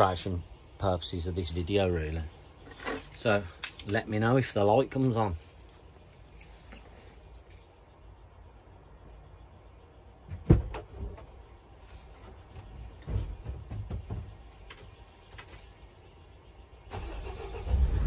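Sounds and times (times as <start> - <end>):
soft thuds and knocks: 10.2 - 11.4, 12.4 - 14.5.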